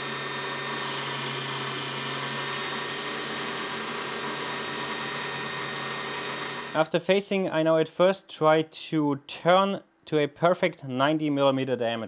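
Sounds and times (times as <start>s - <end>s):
metal lathe humming and whining: 0.0s - 6.8s.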